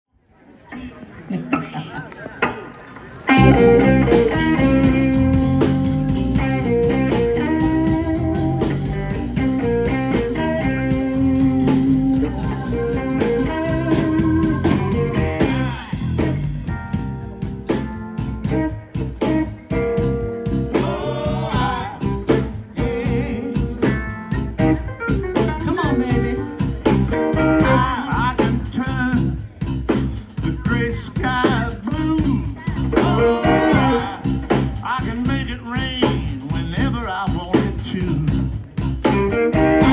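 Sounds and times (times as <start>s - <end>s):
drums: 0.4s - 39.9s
harmonica lead: 3.3s - 16.6s
electric bass: 3.3s - 39.9s.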